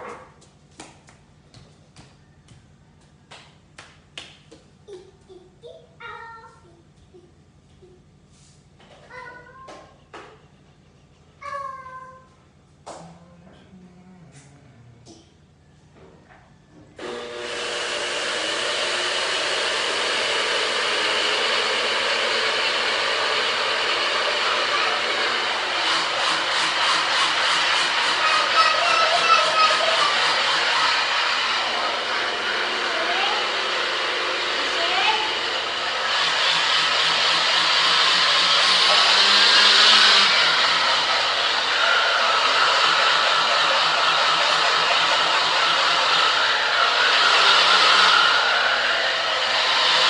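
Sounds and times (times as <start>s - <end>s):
appliance rushing noise: 17.0s - 50.0s.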